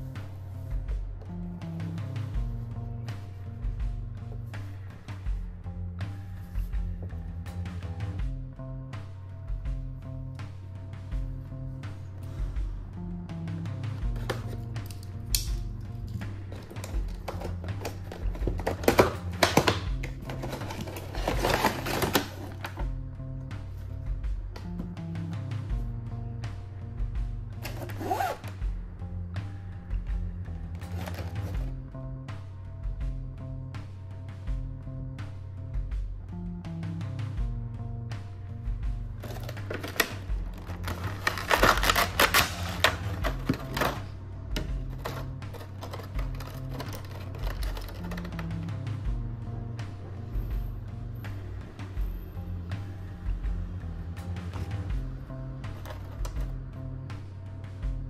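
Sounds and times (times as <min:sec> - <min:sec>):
background music with bass: 0:00.0 - 0:58.0
plastic packaging crackling: 0:16.5 - 0:22.8, 0:39.2 - 0:44.1, 0:44.9 - 0:48.4
plastic tray crinkling: 0:16.5 - 0:22.8, 0:39.2 - 0:44.1, 0:44.9 - 0:48.4.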